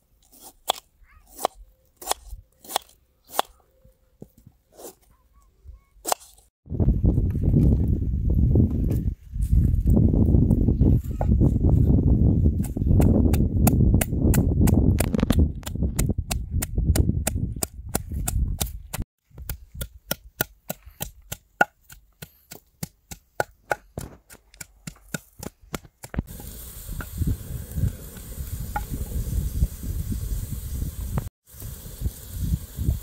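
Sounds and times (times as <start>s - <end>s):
steady hiss: 26.3s - 33.0s.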